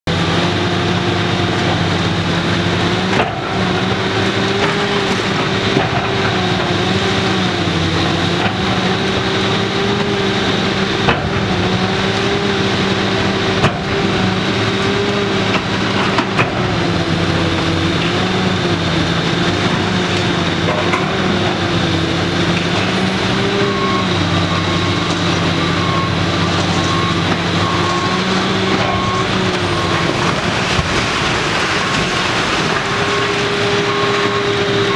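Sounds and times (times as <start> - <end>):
excavator diesel engine: 0.0 - 34.9.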